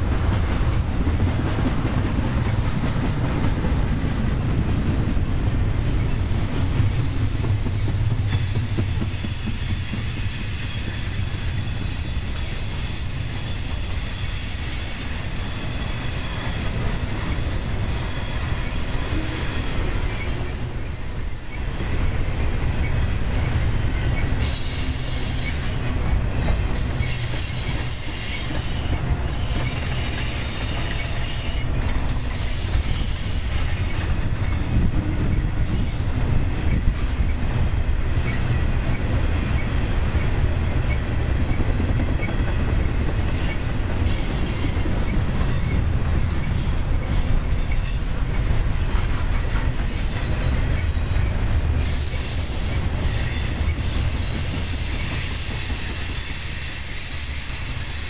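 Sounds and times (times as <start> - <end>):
train wheels rumbling on rail: 0.0 - 58.0
high-pitched wheel squeals: 7.0 - 16.8, 18.0 - 22.2, 26.8 - 32.2.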